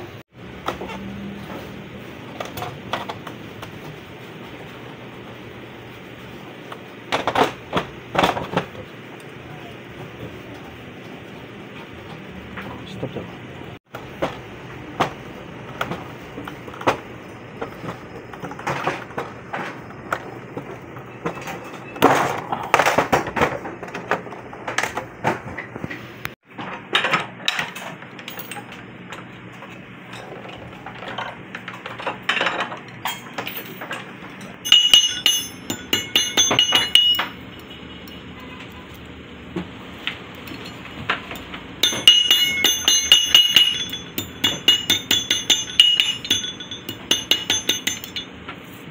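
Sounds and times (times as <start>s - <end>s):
hammer tapping on metal: 34.6s - 38.2s, 40.6s - 48.4s.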